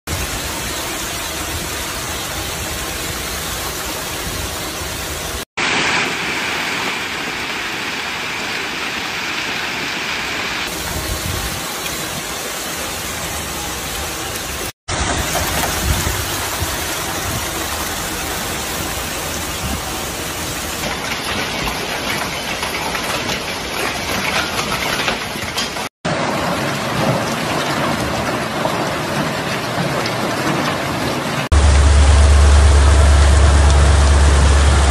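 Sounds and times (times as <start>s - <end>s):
hail and heavy rain: 0.1s - 34.9s
strong wind: 9.1s - 12.4s, 15.0s - 20.8s.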